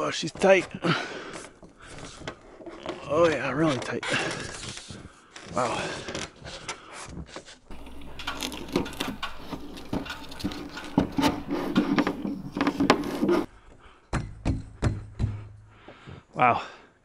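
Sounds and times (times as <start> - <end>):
plastic pipe scraping against wood: 6.4 - 13.5.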